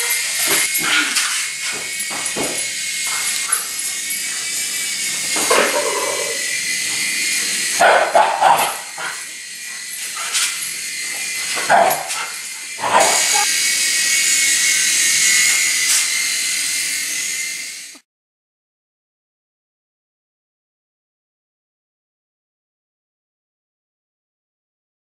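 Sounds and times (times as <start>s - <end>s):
toy helicopter motor whine: 0.0s - 18.1s
dog barking: 5.5s - 6.5s, 7.8s - 9.2s, 11.6s - 13.5s.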